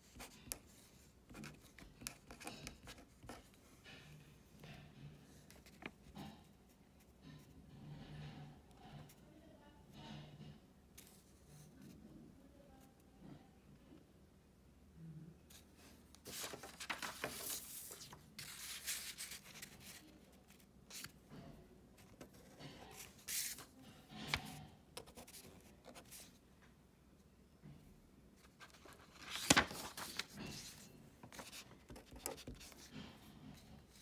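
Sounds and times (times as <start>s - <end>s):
paper rustling: 15.5s - 21.2s, 22.0s - 26.4s, 28.4s - 32.9s.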